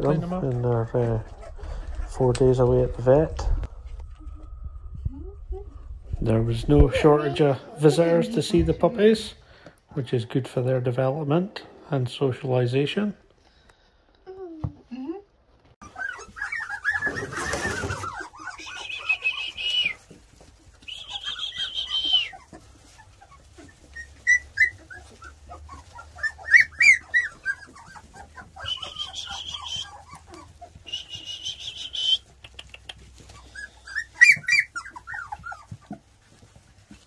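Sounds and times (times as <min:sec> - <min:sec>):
puppies whining and yelping: 0:00.0 - 0:08.3, 0:15.8 - 0:37.0.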